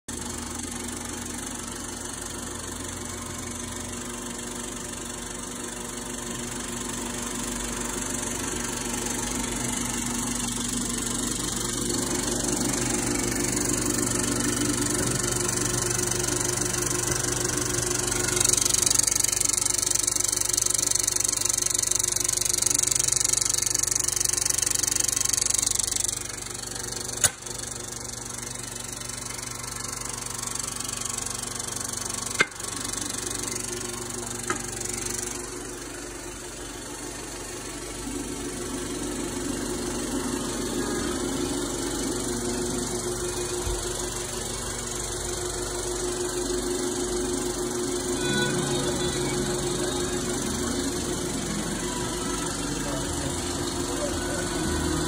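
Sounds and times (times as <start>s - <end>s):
film projector whirring: 0.1s - 55.0s
sharp click: 27.2s - 27.5s.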